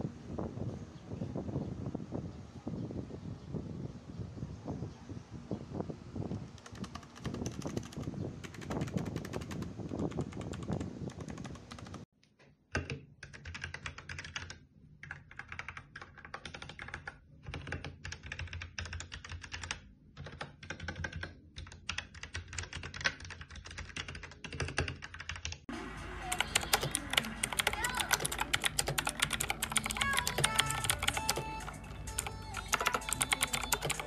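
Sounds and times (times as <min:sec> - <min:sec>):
typing on mechanical keyboard: 0:06.5 - 0:12.1, 0:12.7 - 0:34.0.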